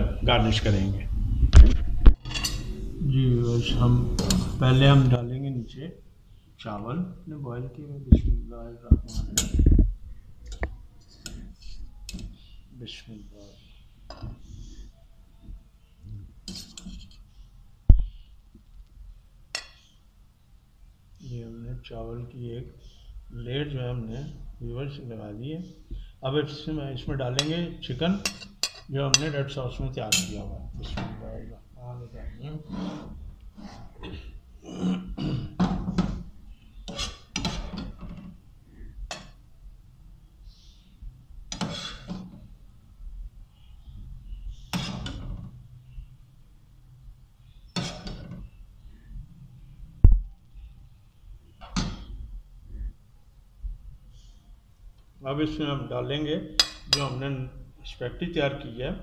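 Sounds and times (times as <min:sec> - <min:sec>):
metal spoon scraping a pan: 0:02.2 - 0:02.9, 0:03.6 - 0:04.9, 0:16.4 - 0:17.4, 0:19.5 - 0:20.0, 0:27.3 - 0:29.4, 0:30.0 - 0:31.0, 0:32.6 - 0:34.0, 0:36.7 - 0:39.4, 0:44.5 - 0:45.6, 0:47.7 - 0:48.6.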